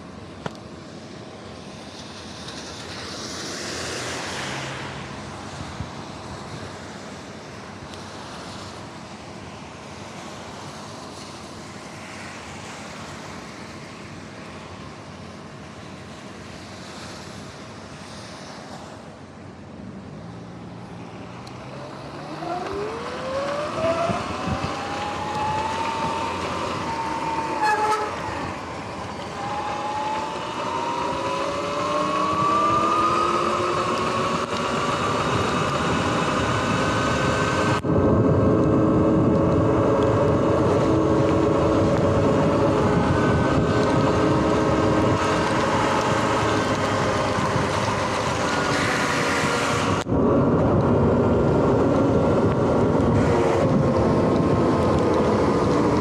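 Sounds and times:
tyres on wet pavement: 0.0s - 56.0s
wind rush: 20.7s - 56.0s.

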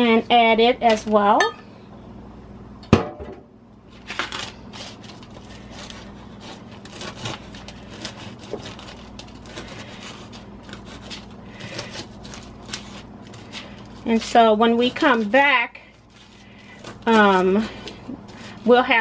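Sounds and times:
knife cutting on paper plate: 4.1s - 15.4s.

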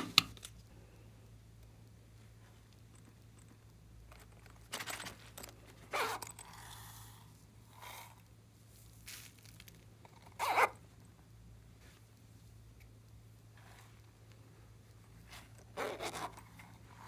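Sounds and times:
hands rustling craft items: 4.1s - 7.0s, 8.6s - 10.0s.

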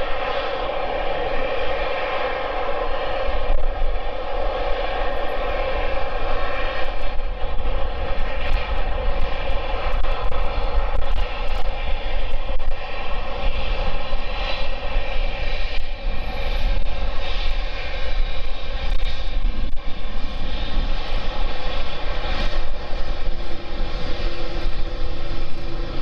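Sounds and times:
jet engine whine: 0.0s - 26.0s
low engine rumble: 0.0s - 26.0s.

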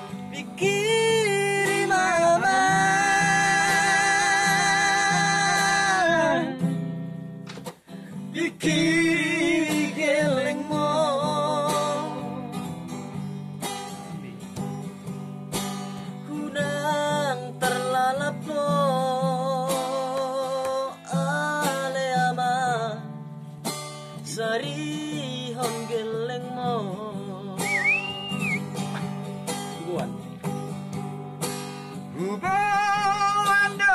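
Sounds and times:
man singing with vibrato: 0.0s - 6.8s, 8.2s - 12.9s, 16.2s - 23.1s, 24.2s - 29.1s, 32.1s - 33.9s
acoustic guitar strumming: 0.0s - 33.9s.

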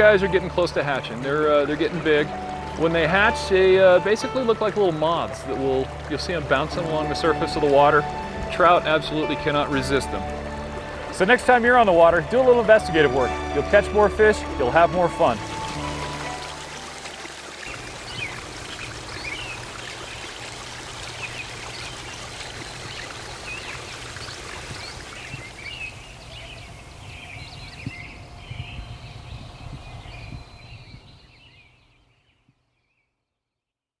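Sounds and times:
river water rushing over stones: 0.0s - 26.6s.

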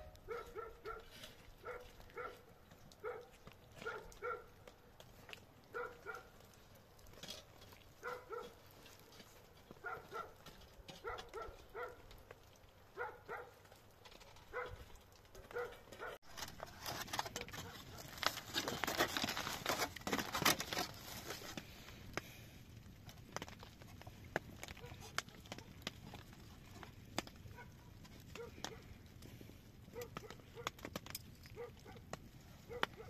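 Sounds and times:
crackling and crunching noise: 0.0s - 33.0s
dog barking: 0.2s - 2.4s, 3.0s - 4.5s, 5.7s - 6.3s, 8.0s - 8.6s, 9.8s - 10.4s, 11.0s - 12.0s, 13.0s - 13.6s, 14.5s - 14.8s, 15.4s - 16.2s, 24.8s - 25.8s, 27.5s - 28.9s, 29.9s - 30.8s, 31.6s - 32.0s, 32.6s - 33.0s.

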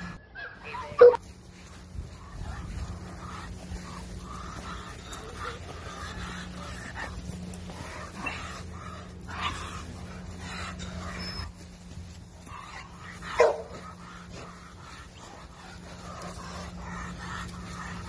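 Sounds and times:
dog barking: 0.4s - 1.3s, 13.2s - 14.1s.

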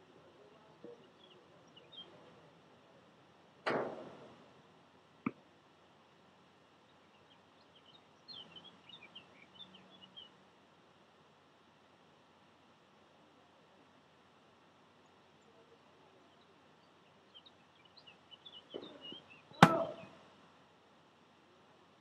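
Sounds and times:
tennis ball strikes: 19.6s - 20.1s.

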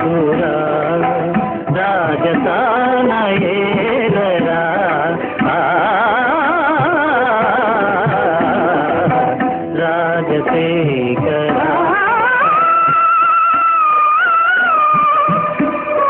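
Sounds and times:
old film song melody: 0.0s - 16.0s
tabla strokes: 0.0s - 16.0s.

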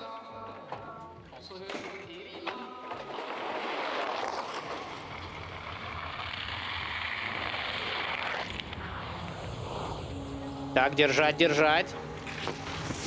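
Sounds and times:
wind rushing: 7.4s - 13.0s.

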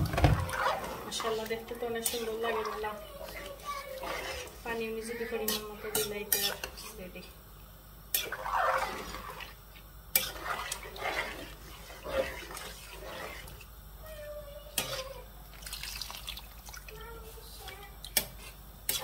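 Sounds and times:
ladle stirring liquid in pot: 0.0s - 7.0s, 8.1s - 13.8s.

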